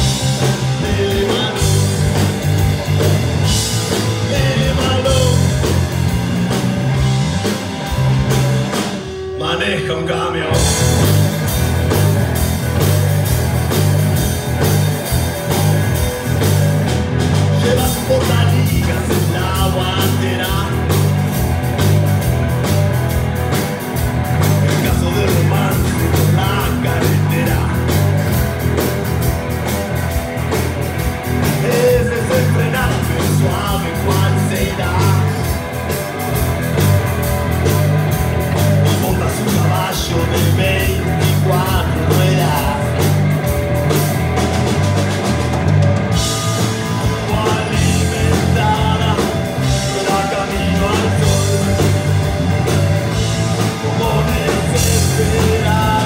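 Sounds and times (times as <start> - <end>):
drum kit beat: 0.0 - 9.6, 10.5 - 56.0
bass guitar: 0.0 - 56.0
electric guitars: 0.0 - 56.0
man singing: 0.4 - 2.3, 3.9 - 5.7, 9.3 - 10.9, 17.5 - 21.0, 24.6 - 28.0, 31.4 - 35.6, 38.6 - 43.2, 46.9 - 52.2, 53.5 - 56.0.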